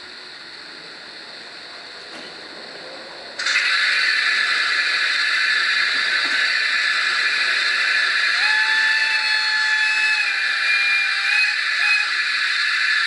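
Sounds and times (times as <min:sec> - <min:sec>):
soft steam hiss: 0:00.0 - 0:10.2
loud steam whistle: 0:03.4 - 0:13.0.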